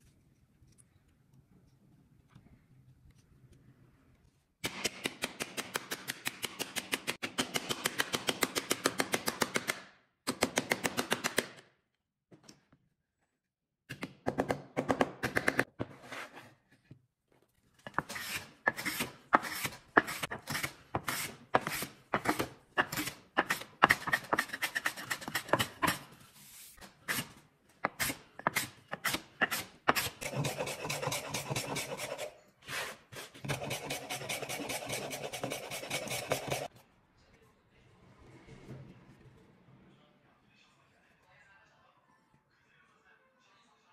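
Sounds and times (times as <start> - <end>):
hand tool rasping on wood: 27.9 - 36.7.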